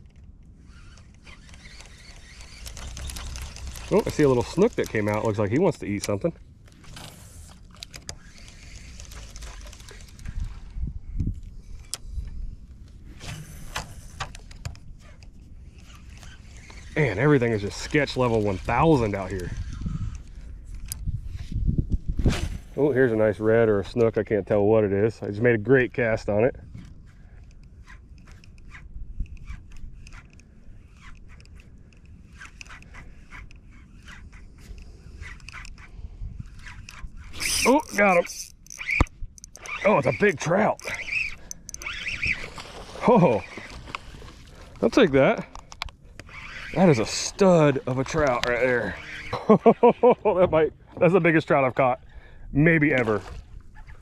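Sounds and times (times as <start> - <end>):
sharp clicks: 0.0 - 5.4, 36.8 - 42.5
fishing reel cranking: 0.0 - 10.7, 13.5 - 21.0, 26.8 - 44.8, 45.4 - 49.8.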